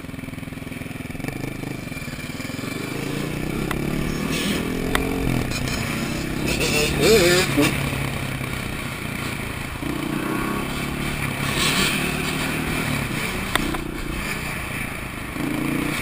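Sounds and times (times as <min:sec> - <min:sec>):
motorcycle engine running: 0:00.0 - 0:16.0
sharp click: 0:13.5 - 0:13.9.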